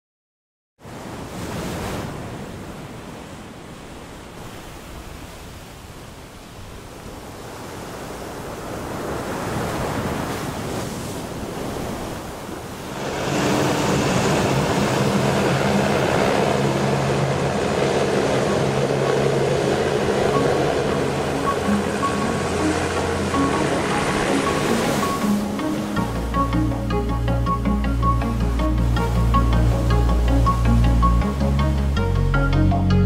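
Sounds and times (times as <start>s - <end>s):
waves washing: 0.8s - 32.3s
wind: 0.8s - 33.0s
hovercraft engine drone: 12.8s - 32.1s.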